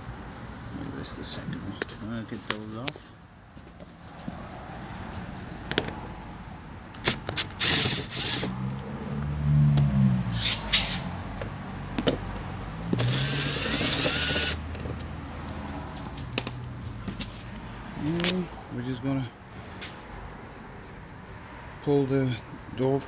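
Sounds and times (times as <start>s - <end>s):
power drill whining: 7.4s - 8.5s, 13.0s - 14.6s.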